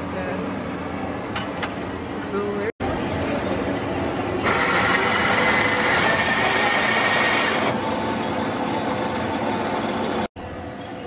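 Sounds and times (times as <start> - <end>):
coffee machine grinding beans: 4.4 - 7.8.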